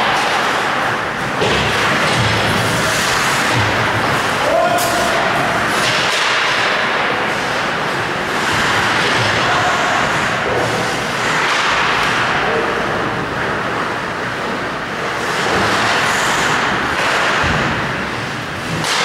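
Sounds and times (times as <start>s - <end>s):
skates scraping on ice: 0.0s - 12.4s.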